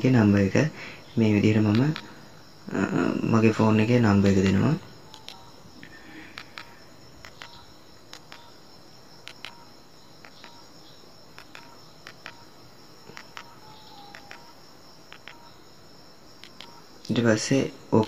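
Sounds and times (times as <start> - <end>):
crickets chirping: 0.0 - 18.0
phone keypad clicks: 5.1 - 5.5, 6.4 - 8.5, 9.2 - 10.6, 11.4 - 12.5, 13.1 - 15.5, 16.4 - 16.8.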